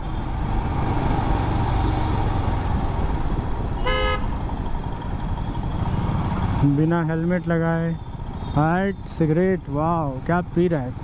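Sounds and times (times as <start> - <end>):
motorcycle engine running: 0.0 - 11.0
road and wind noise: 0.0 - 11.0
vehicle horn toot: 3.8 - 4.4.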